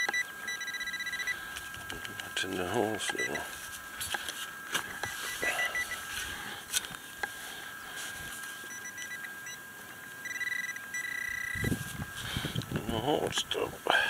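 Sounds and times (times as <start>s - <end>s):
faint steady high tone: 0.0s - 1.4s, 2.4s - 3.7s, 5.0s - 6.6s, 7.2s - 11.8s
rapid high beeps: 0.0s - 1.4s, 2.8s - 3.5s, 5.0s - 6.0s, 8.7s - 9.6s, 10.2s - 11.7s.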